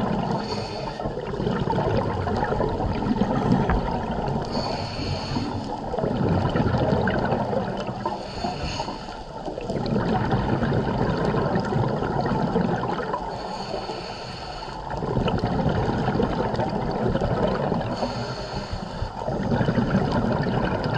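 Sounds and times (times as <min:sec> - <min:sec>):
bubbling exhaust underwater: 0:00.0 - 0:20.9
regulator inhale hiss: 0:00.3 - 0:01.2, 0:04.4 - 0:05.8, 0:08.0 - 0:09.4, 0:13.3 - 0:15.0, 0:17.9 - 0:19.2.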